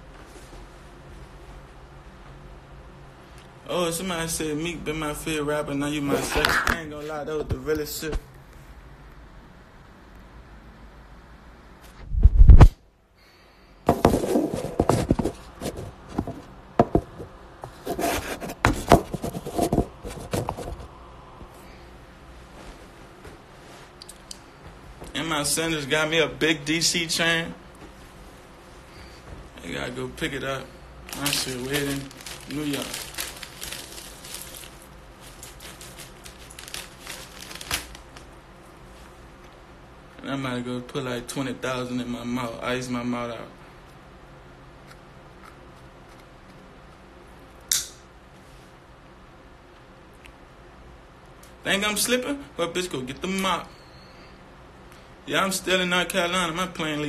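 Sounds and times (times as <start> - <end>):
rubbing and scraping: 13.9 - 17.0, 17.6 - 20.9
banknotes crinkling and flicking: 31.0 - 38.4
sharp click: 47.7 - 48.0.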